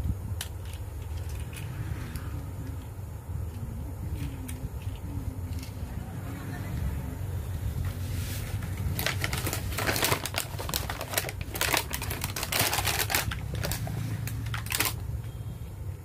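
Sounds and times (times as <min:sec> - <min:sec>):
plastic blister packaging crackling: 0:08.4 - 0:15.3.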